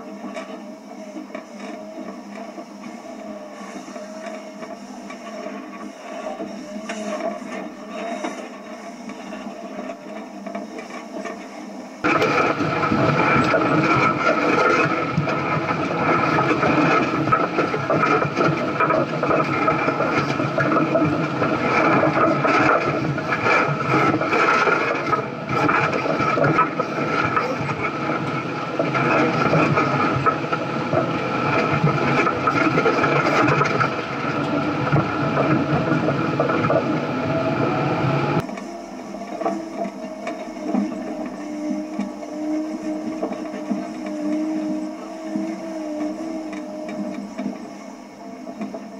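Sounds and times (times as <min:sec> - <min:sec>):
off-road vehicle engine under load: 0:12.0 - 0:48.9.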